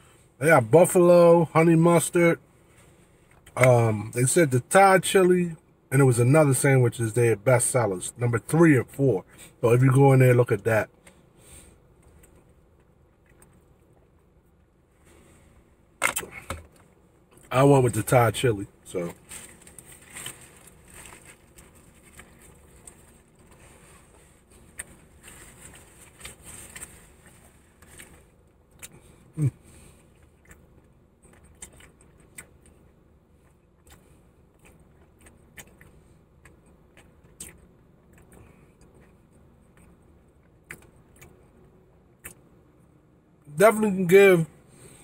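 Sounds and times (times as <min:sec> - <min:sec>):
sandwich wrapping rustling: 0:19.0 - 0:28.4.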